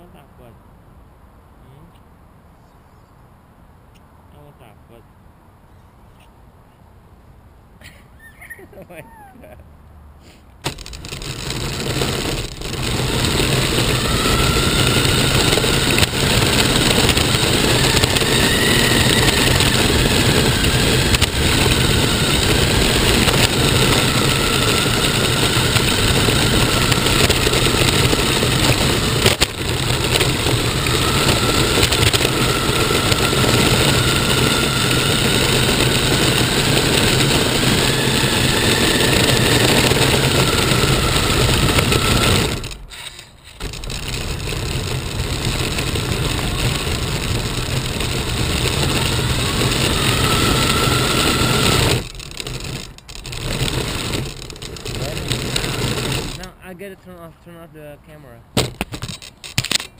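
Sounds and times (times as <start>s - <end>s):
rc car drivetrain and tyre noise: 10.6s - 56.9s, 58.6s - 59.9s
faint motor whine: 10.6s - 57.7s.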